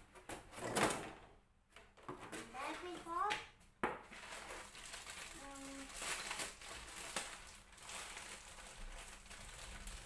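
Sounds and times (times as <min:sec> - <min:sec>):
plastic rustling and crinkling: 0:04.0 - 0:10.0.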